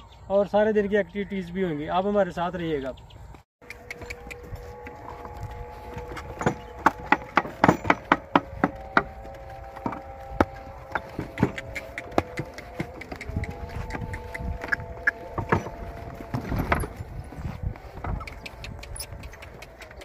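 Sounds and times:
wooden cart rattling and knocking: 0:05.2 - 0:20.0.

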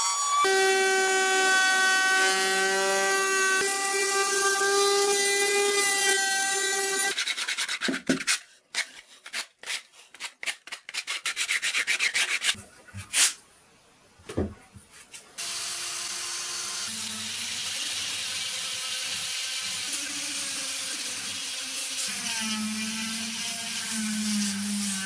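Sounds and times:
rubbing and scraping by hand: 0:07.0 - 0:13.4.

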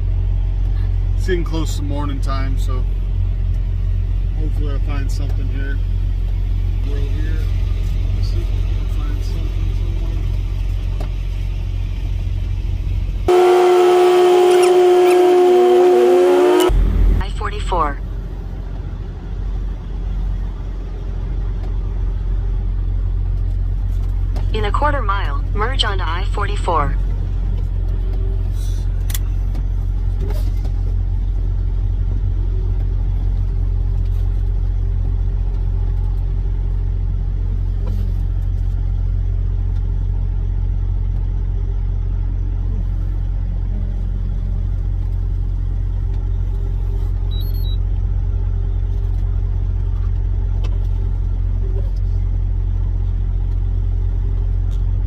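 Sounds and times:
even hum: 0:00.0 - 0:18.8
truck diesel engine drone: 0:00.0 - 0:55.0.

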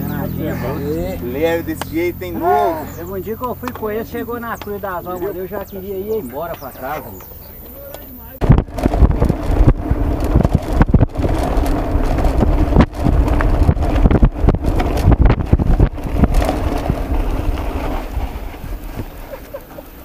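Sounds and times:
bike rattling and knocking: 0:01.3 - 0:20.0
wind buffeting microphone: 0:08.4 - 0:19.6.

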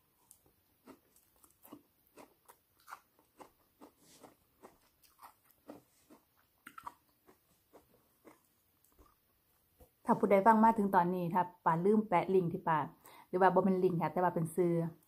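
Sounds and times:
chewing crunchy food: 0:00.1 - 0:09.4.

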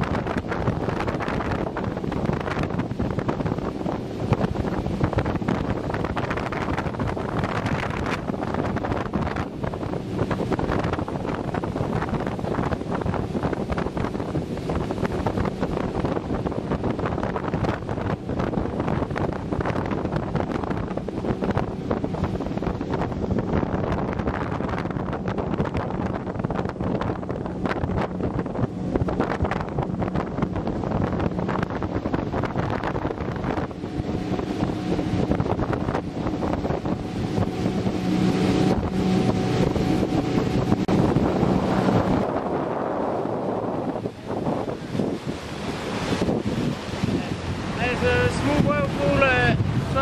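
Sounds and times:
outboard motor humming: 0:00.0 - 0:50.0
wind buffeting microphone: 0:00.0 - 0:50.0.

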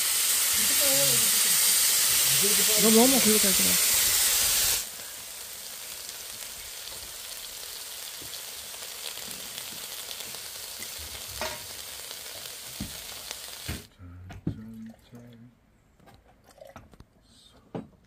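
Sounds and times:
food sizzling on a griddle: 0:00.0 - 0:13.9.

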